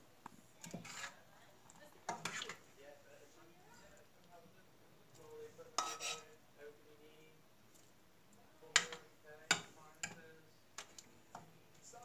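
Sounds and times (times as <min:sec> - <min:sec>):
metal spoon stirring sauce: 0:00.6 - 0:02.7, 0:05.0 - 0:06.4, 0:08.7 - 0:12.0
spoon clinking against pot: 0:05.8 - 0:06.3, 0:08.7 - 0:10.3.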